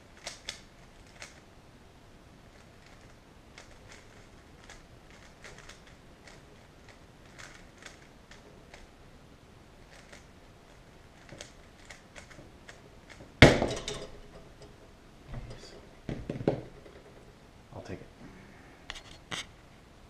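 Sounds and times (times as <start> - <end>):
puzzle cube clicking: 0.2 - 1.4, 2.6 - 8.9, 9.8 - 13.3.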